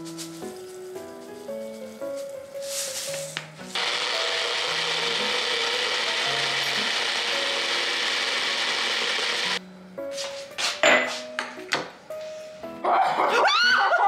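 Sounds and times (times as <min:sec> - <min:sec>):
blender motor running: 0:03.8 - 0:09.6
blender rattling on stone countertop: 0:03.8 - 0:09.6.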